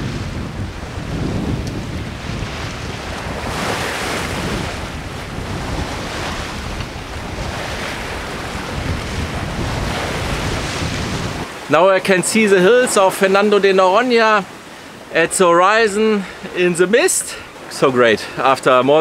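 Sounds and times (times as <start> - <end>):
wind buffeting microphone: 0.0 - 11.7
ocean waves against a boat: 0.0 - 19.0.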